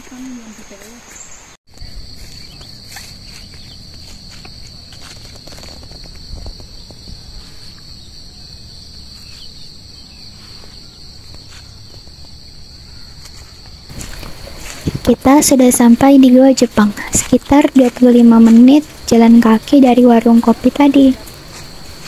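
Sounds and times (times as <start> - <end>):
high-pitched insect drone: 1.7 - 22.0
footsteps on a footpath: 1.9 - 7.9, 10.4 - 12.4, 13.2 - 15.2, 15.9 - 19.8, 20.4 - 22.0.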